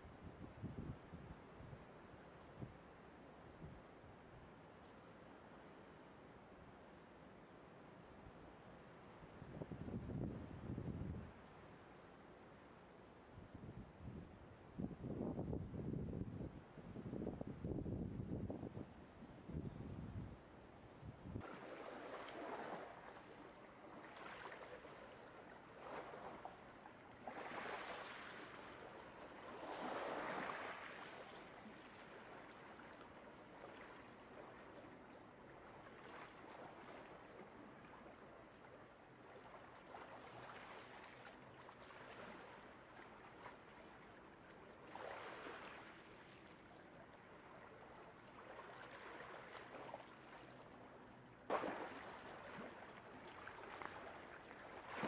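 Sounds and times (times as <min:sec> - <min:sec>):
small waves lapping on rocks: 0:21.4 - 0:50.8, 0:51.4 - 0:55.0.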